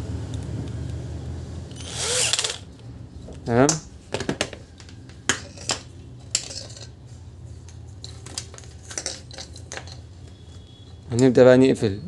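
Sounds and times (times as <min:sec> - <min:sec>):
tools clicking and knocking: 0:08.0 - 0:10.1.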